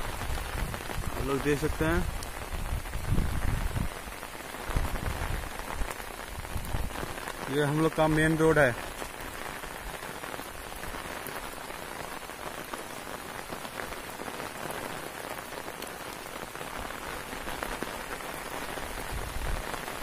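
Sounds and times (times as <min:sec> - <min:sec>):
steady rain on wet road: 0:00.0 - 0:20.0.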